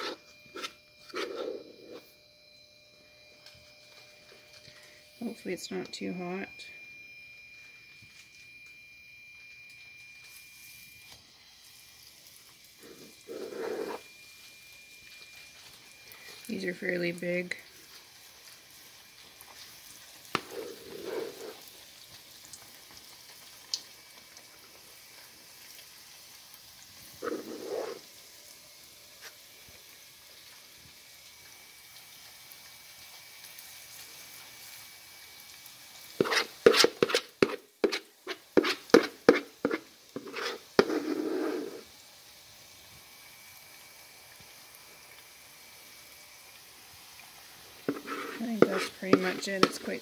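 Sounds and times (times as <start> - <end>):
metal spoon scraping a bowl: 0.0 - 2.1, 12.8 - 14.0, 20.4 - 21.6, 27.2 - 28.0, 36.2 - 41.9, 47.9 - 50.0
frying oil sizzling: 4.8 - 50.0.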